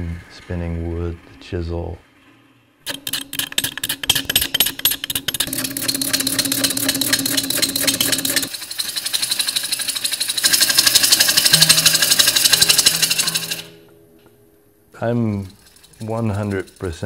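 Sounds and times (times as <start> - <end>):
lathe gouge chattering on wood: 2.9 - 13.8, 15.2 - 17.0
lathe motor hum: 4.8 - 13.8.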